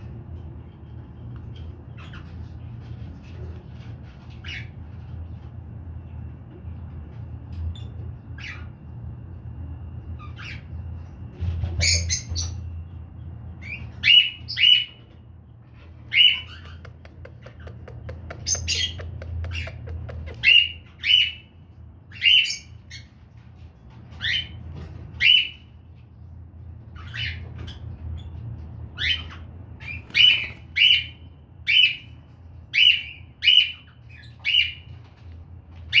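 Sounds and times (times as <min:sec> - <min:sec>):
steady low hum: 0:00.0 - 0:36.0
cockatiel chirping calls: 0:29.0 - 0:32.1.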